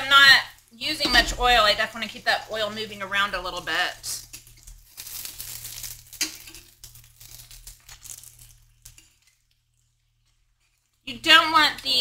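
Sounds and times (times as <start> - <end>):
tacos sizzling in oil: 0.0 - 12.0
metal tongs in skillet: 0.6 - 9.4.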